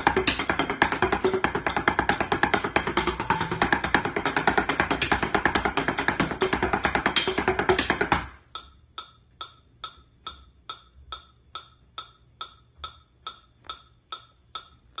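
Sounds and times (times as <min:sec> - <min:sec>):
instrumental drum beat: 0:00.0 - 0:09.2
wood-block metronome click: 0:00.0 - 0:15.0.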